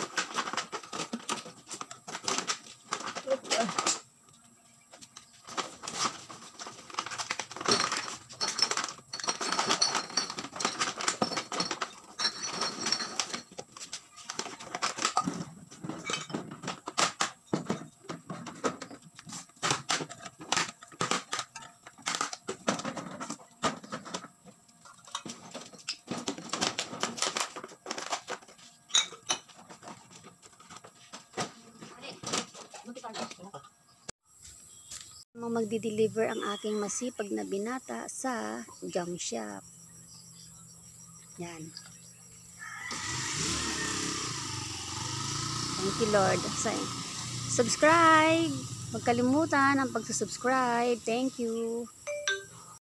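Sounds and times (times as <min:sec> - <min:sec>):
plastic bottles clattering: 0:00.0 - 0:04.1, 0:05.5 - 0:32.8.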